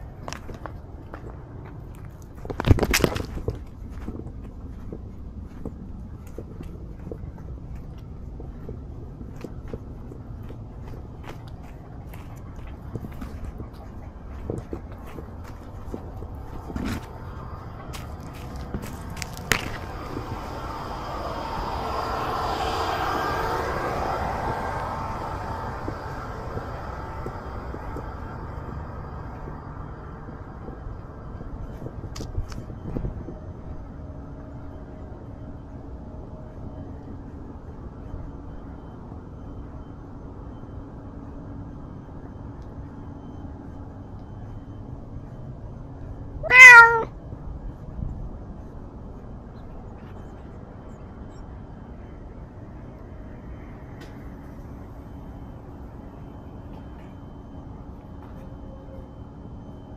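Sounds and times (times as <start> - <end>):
aircraft passing overhead: 0.0 - 59.9
camera handling rumble: 2.1 - 4.4
cat meowing: 46.4 - 47.1.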